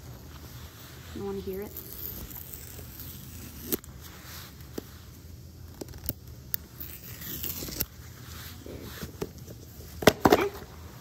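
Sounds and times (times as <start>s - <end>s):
paper rustling and tearing: 6.8s - 9.0s.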